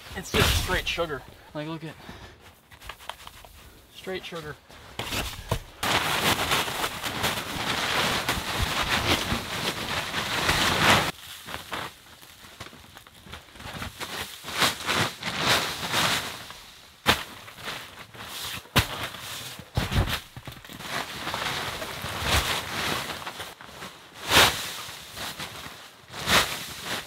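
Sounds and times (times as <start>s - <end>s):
plastic tarp crinkling: 0.0s - 1.2s, 3.2s - 27.0s
snow shovel scraping snow: 0.0s - 1.2s, 24.2s - 25.4s, 26.2s - 27.0s.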